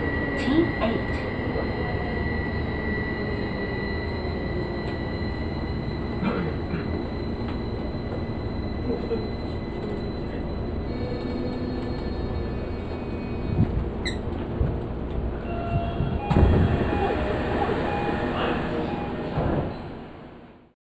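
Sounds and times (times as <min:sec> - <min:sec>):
wheels rumbling on rail: 0:00.0 - 0:20.6.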